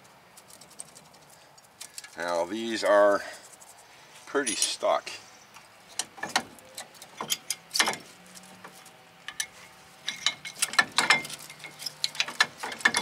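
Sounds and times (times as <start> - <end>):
brake pads clicking and scraping: 0.0 - 2.5, 5.6 - 13.0.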